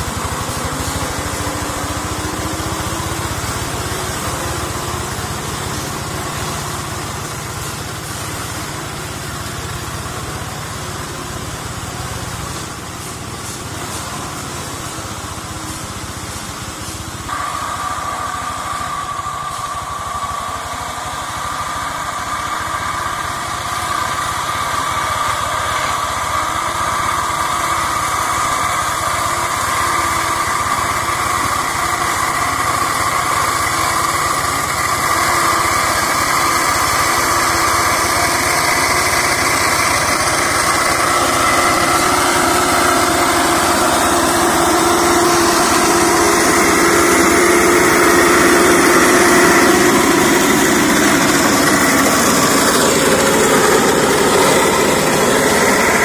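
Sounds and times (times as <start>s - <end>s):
hand tractor engine mowing brush: 21.6s - 56.0s.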